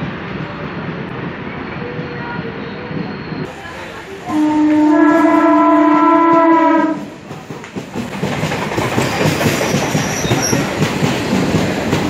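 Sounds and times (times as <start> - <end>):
train horn blast: 4.3 - 7.1
train wheels clattering on rails: 4.6 - 12.0.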